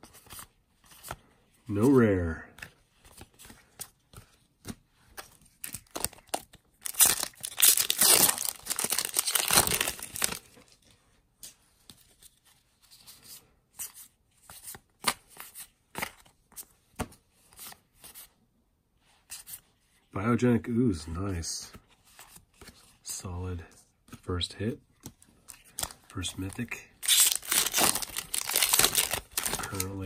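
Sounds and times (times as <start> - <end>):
wrapper being torn open: 5.6 - 10.5, 27.0 - 30.0.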